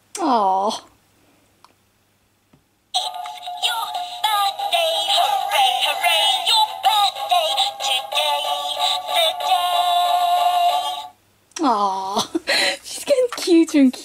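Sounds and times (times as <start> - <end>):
recorded singing voice: 3.0 - 11.1
toy playing electronic tune: 3.0 - 11.1.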